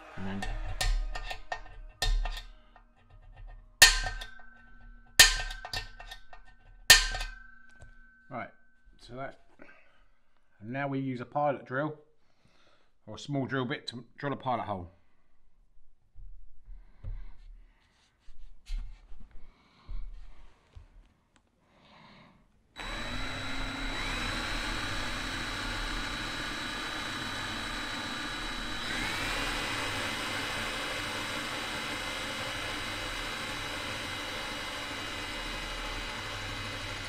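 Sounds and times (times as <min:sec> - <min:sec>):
cordless drill whining: 0:22.8 - 0:37.0.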